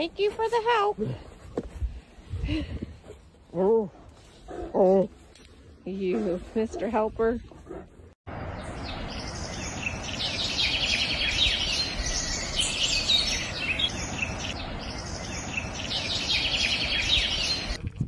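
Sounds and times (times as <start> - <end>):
small birds chirping: 8.3 - 17.8.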